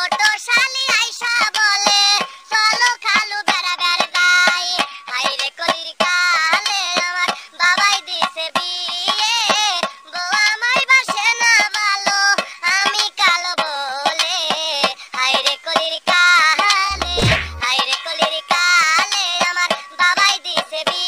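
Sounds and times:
steady drum beat: 16.9 - 17.7.

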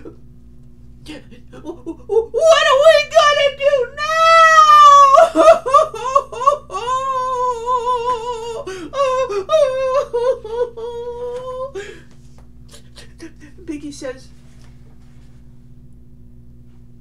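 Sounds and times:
woman humming: 1.0 - 3.0, 3.7 - 12.1, 12.7 - 13.7.

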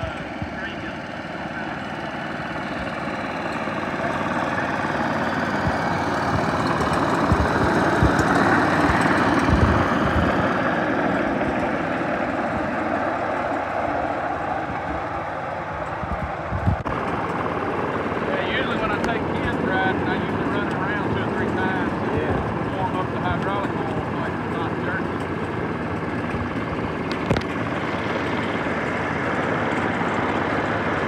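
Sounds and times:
miniature train running by: 0.0 - 31.0
low thumps: 5.5 - 10.7.

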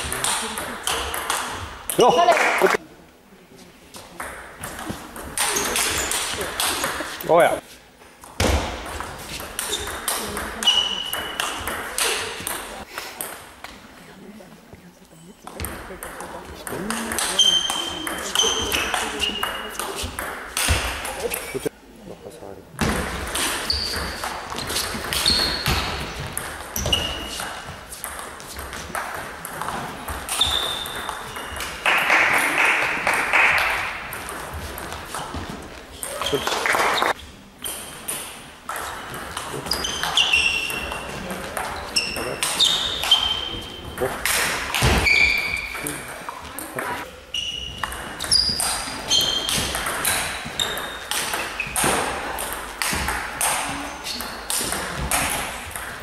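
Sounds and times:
table tennis ball hits: 0.1 - 2.2, 8.2 - 13.5, 22.8 - 46.2, 47.8 - 56.0
shoes squeaking on floor: 3.9 - 7.2, 8.4 - 12.8, 16.4 - 21.6, 23.2 - 31.9, 34.2 - 55.8
ball bouncing on table: 8.2 - 13.8, 47.8 - 56.0.

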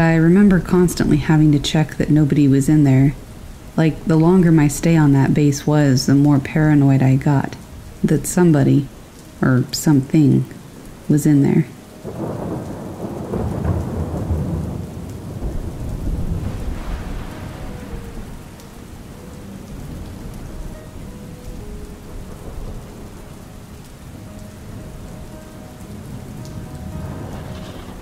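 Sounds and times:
rain falling: 0.0 - 28.0
thunder rolling: 12.0 - 23.4, 25.9 - 28.0.

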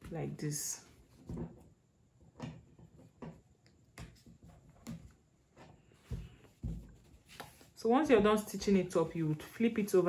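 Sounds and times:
fabric taps and rustles: 6.0 - 7.6.

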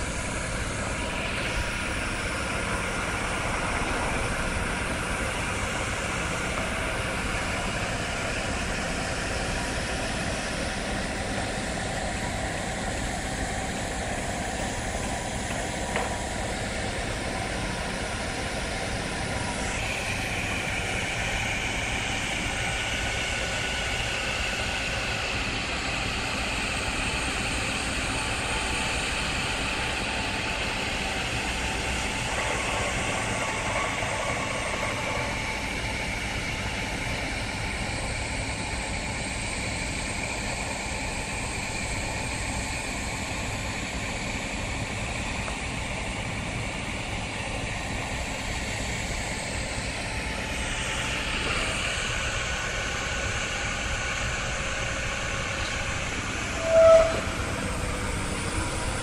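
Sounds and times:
heavy machinery rumble and hiss: 0.0 - 59.0.

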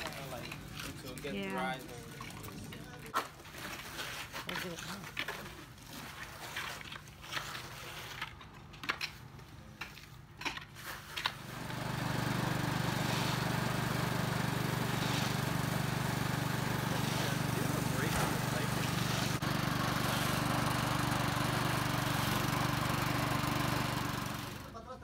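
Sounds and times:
plaster mixer engine running: 11.4 - 24.8.

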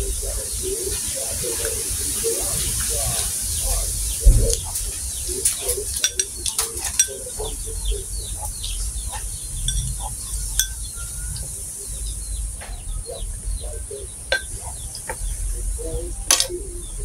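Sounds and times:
chewing: 0.8 - 16.6
forks clinking on glass: 5.4 - 7.6, 9.6 - 11.0, 14.3 - 15.1, 16.2 - 16.6.

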